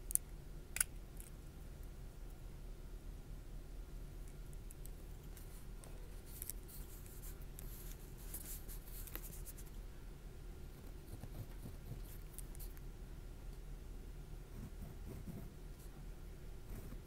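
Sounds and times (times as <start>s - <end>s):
pen scratching on paper: 14.5s - 15.5s.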